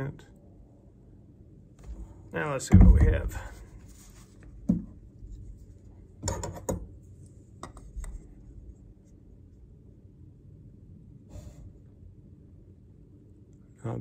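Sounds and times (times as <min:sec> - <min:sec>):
wooden knocks: 0:02.7 - 0:03.5.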